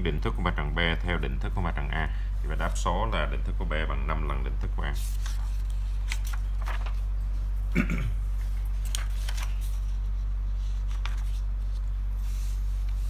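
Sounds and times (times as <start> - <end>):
low electrical hum: 0.0 - 13.0
paper rustling and crinkling: 4.8 - 7.4, 8.4 - 13.0.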